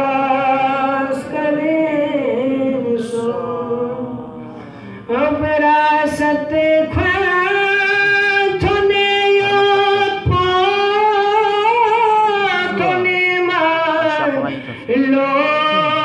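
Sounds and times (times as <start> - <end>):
person singing long held notes: 0.0 - 16.0.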